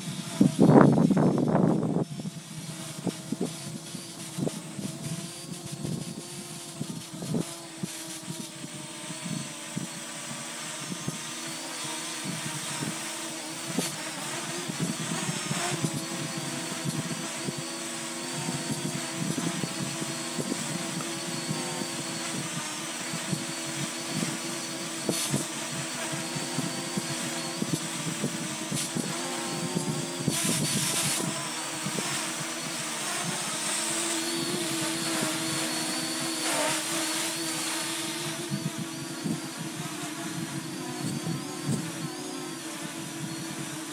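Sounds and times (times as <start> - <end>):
wind buffeting microphone: 0.0 - 7.5
drone propellers whining: 0.0 - 43.9.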